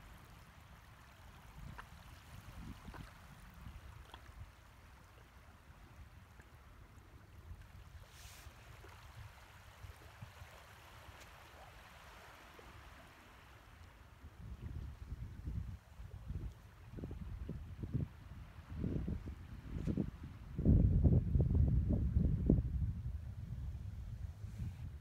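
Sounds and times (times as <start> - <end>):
wind rumble on microphone: 0.0 - 12.0, 13.9 - 25.0
hiss of shallow water: 7.8 - 13.8, 24.2 - 25.0.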